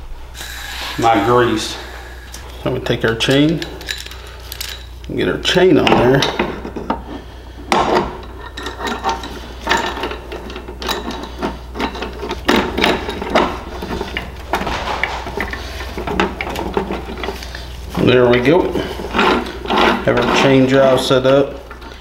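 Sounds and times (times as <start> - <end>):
chain clinking against metal case: 3.2 - 5.0.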